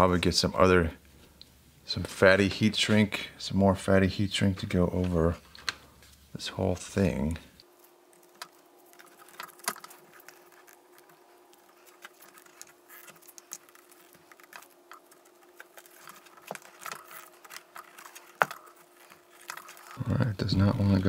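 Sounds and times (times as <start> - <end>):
faint steady hum: 0.0 - 21.0
gloved hands clicking and rustling: 4.6 - 6.3, 7.6 - 21.0.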